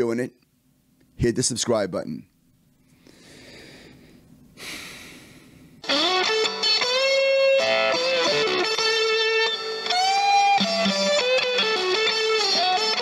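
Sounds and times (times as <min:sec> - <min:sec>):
electric guitar lead with string bends: 0:05.8 - 0:13.0.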